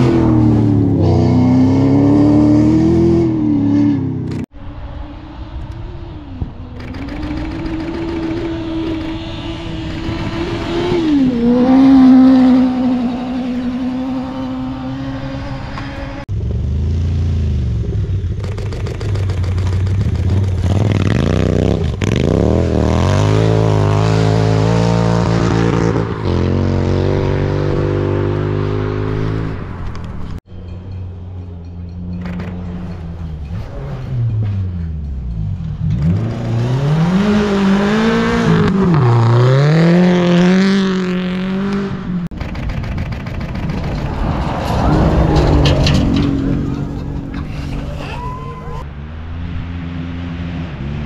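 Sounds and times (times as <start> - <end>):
vehicle engine running: 4.8 - 10.9, 16.0 - 22.1
dirt bike engine revving: 6.7 - 29.6, 35.8 - 42.4.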